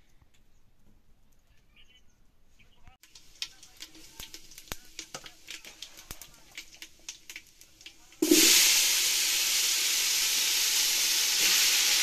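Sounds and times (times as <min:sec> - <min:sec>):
hot oil sizzling in a pot: 0:03.0 - 0:12.0
oil popping and crackling: 0:03.0 - 0:12.0.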